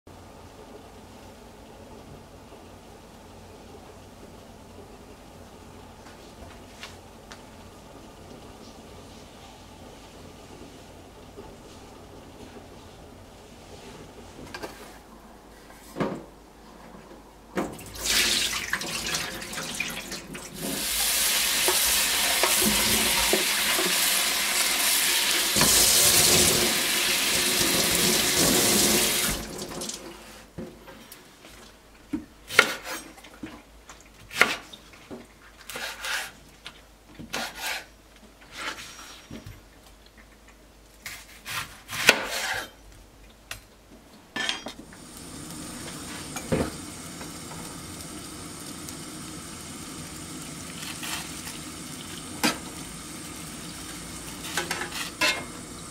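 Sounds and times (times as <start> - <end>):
tap water running into tray: 17.7 - 30.1, 44.9 - 55.8.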